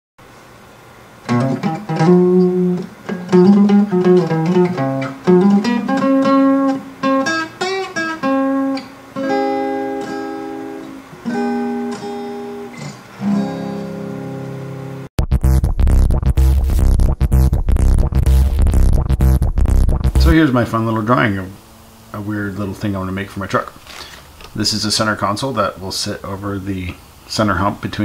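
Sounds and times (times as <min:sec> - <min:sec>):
acoustic guitar playing: 0:01.2 - 0:21.8.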